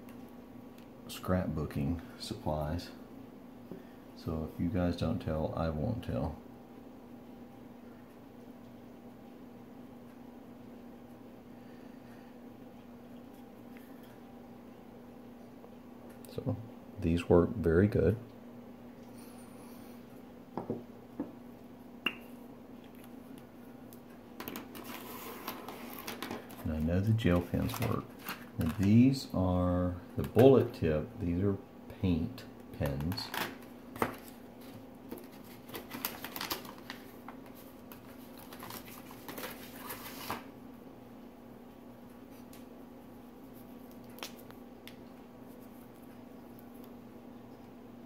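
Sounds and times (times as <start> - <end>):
faint steady hum: 0.0 - 48.0
pens rustling and clattering: 24.4 - 29.1.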